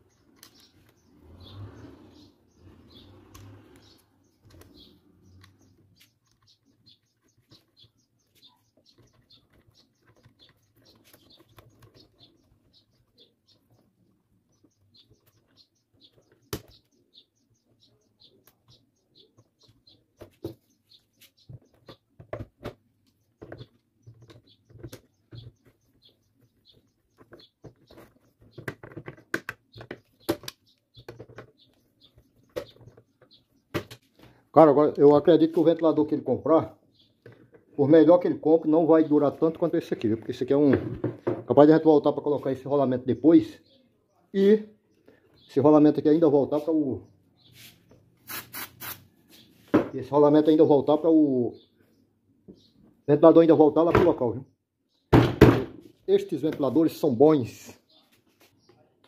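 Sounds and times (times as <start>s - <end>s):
faint bird chirps: 0.0s - 22.1s.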